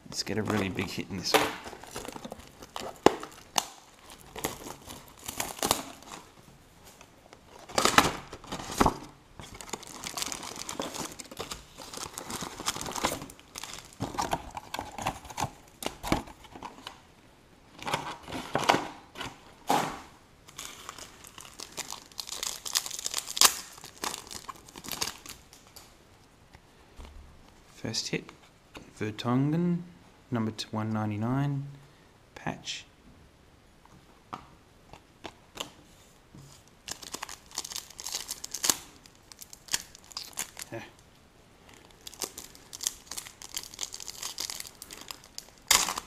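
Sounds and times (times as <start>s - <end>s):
foil wrappers crinkling: 1.6s - 16.7s, 20.5s - 25.9s, 36.8s - 40.9s, 41.6s - 46.0s
foil wrappers ripping: 1.7s - 6.3s, 7.7s - 16.0s, 20.5s - 25.6s, 36.8s - 40.8s, 41.7s - 46.0s.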